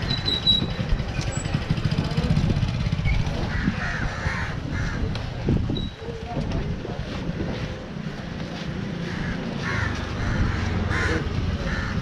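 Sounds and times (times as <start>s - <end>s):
crows cawing: 3.5s - 5.1s, 9.0s - 12.0s.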